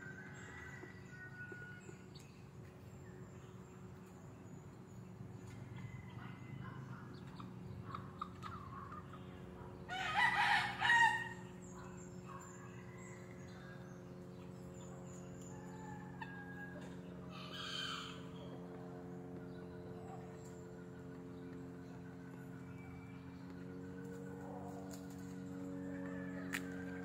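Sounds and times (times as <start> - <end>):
steady low hum: 0.0 - 27.0
rooster crowing: 9.9 - 11.4.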